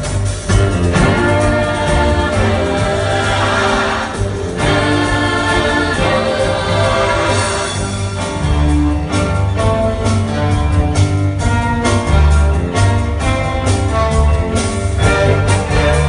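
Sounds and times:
orchestra playing: 0:00.0 - 0:16.0.

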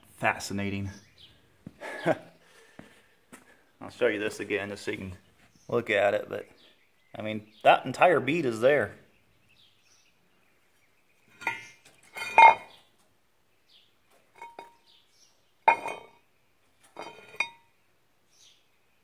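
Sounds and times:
metal parts clanking: 0:11.3 - 0:12.7.

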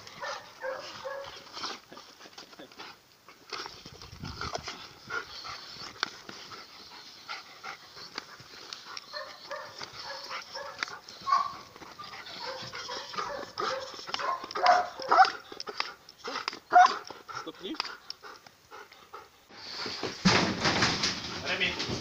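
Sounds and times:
dog whining and yelping: 0:07.1 - 0:15.6, 0:16.2 - 0:17.0.

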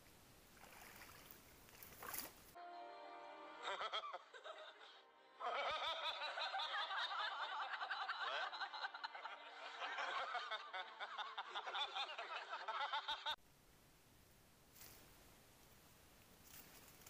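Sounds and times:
men laughing: 0:03.6 - 0:13.4.

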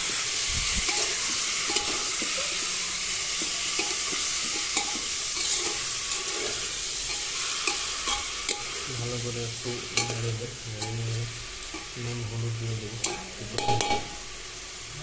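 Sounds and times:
chicken sizzling in hot oil: 0:00.0 - 0:15.0
spatula scraping pot: 0:00.8 - 0:08.9.

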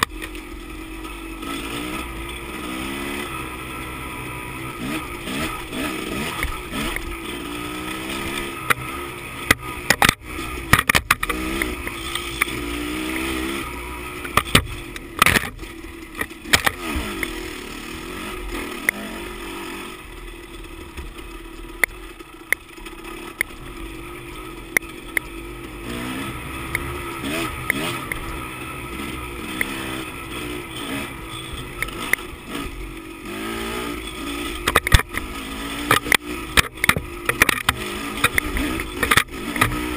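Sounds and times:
dirt bike engine revving: 0:00.0 - 0:39.9
sharp knocks and clatters: 0:09.4 - 0:12.6, 0:14.2 - 0:17.4, 0:34.5 - 0:39.9.

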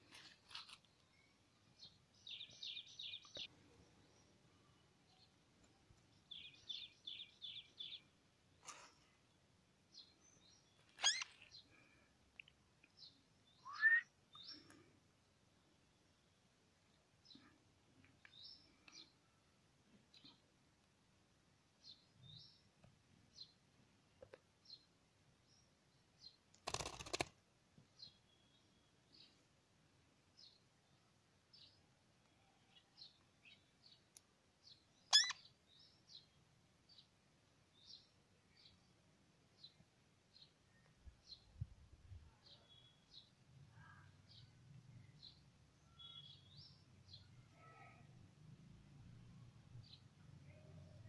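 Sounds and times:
faint high chirps: 0:10.0 - 0:14.9, 0:34.7 - 0:35.6, 0:42.2 - 0:48.2
parakeet calls: 0:11.0 - 0:11.4, 0:13.7 - 0:14.1, 0:35.1 - 0:35.4.

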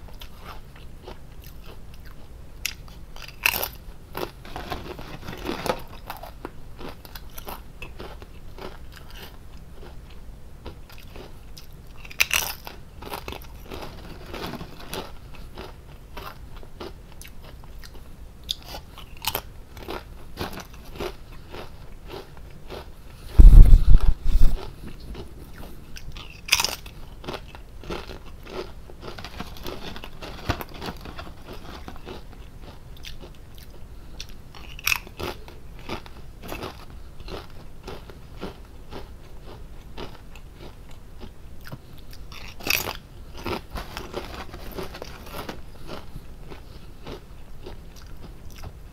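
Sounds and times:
potato chips crunching: 0:00.2 - 0:10.0, 0:10.6 - 0:23.7, 0:24.5 - 0:48.7
loud low thumping: 0:23.3 - 0:24.6.

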